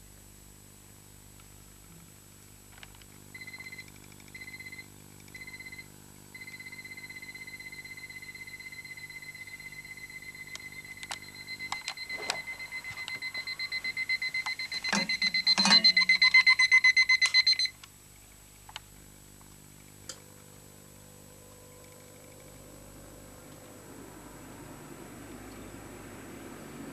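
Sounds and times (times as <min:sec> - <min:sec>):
electronic alarm beeping: 0:03.4 - 0:17.8.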